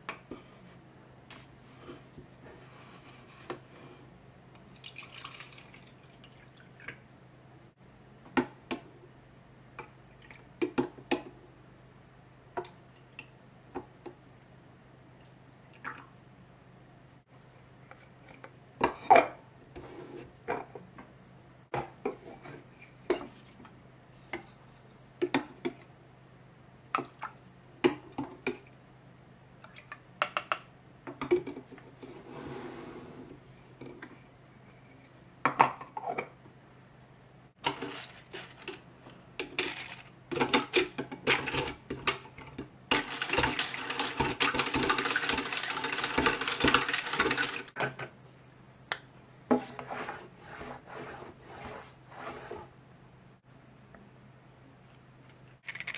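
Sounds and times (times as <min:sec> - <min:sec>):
plastic toy cookware clacking: 0:42.9 - 0:47.7.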